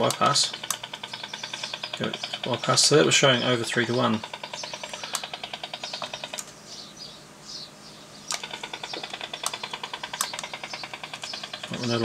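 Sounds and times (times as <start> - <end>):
sharp clicks: 0.0 - 2.8, 3.5 - 6.6, 8.2 - 12.0
radar interference pulses: 8.2 - 12.0.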